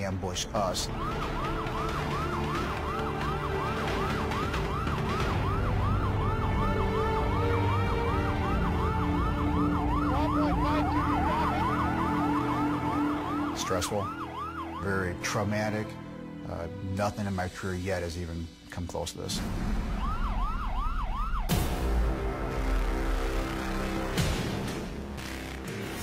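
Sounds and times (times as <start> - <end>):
police siren yelping: 0.4 - 15.3, 19.8 - 22.2.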